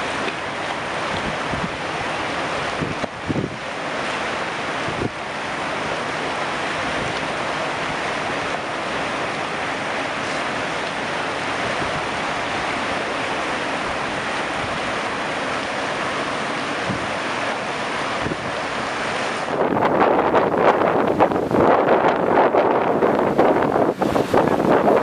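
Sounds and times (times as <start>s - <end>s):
choppy sea water rushing: 0.0s - 25.0s
wind on microphone: 0.9s - 6.0s, 10.1s - 13.1s, 16.0s - 25.0s.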